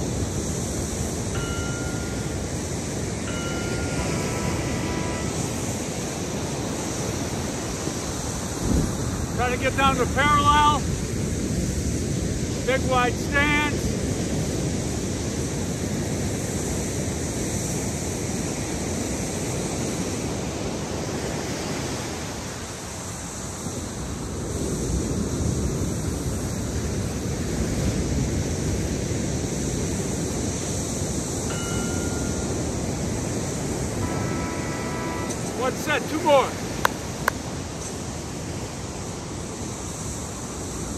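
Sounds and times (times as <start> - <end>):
wind on microphone: 0.0 - 9.4
ocean surf: 0.0 - 40.9.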